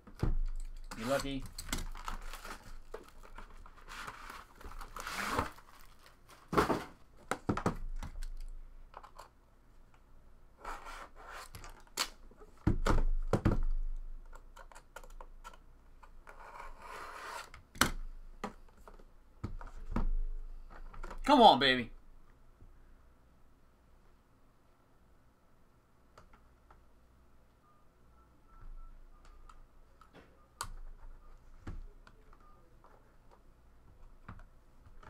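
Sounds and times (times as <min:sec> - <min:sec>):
plastic wrap tearing and crinkling: 0:01.8 - 0:06.5.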